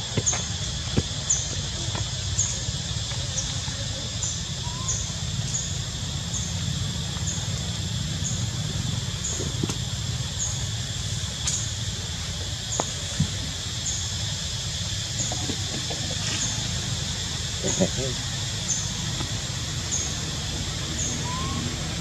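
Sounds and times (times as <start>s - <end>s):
high insect drone: 0.0s - 22.0s.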